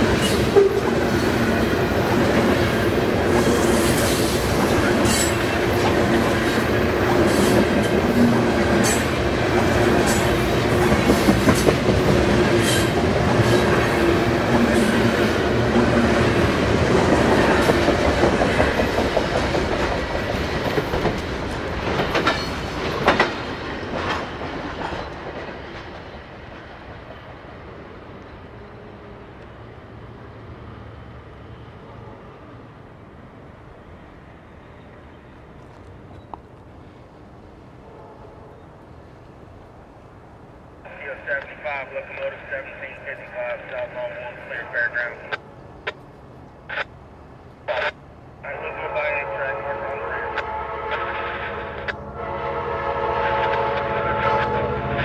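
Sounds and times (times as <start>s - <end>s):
wheels clacking over rail joints: 0.0s - 27.3s
train rumbling past: 0.0s - 55.0s.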